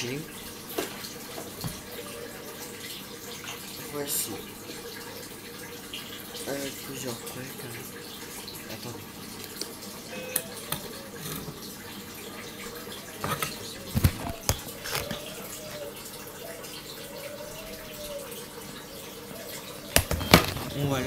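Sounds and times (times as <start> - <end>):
faint wavering tone: 10.1 - 11.3.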